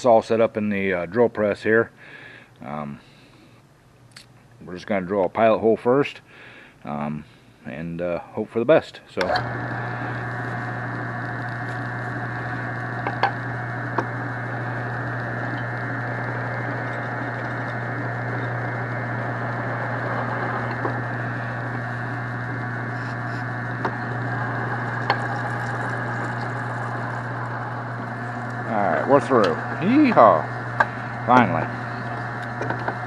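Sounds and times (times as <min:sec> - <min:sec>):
drill press drilling metal: 0:09.2 - 0:33.0.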